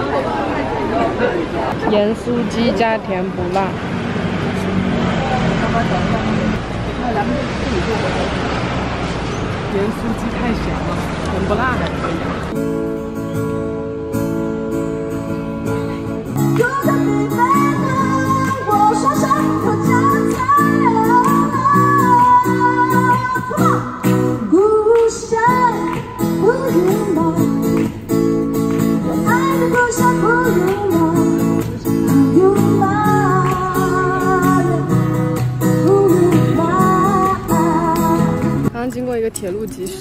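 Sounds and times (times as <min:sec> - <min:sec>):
strummed acoustic guitar: 0:12.6 - 0:38.7
woman singing with vibrato: 0:16.4 - 0:27.9, 0:29.0 - 0:39.0.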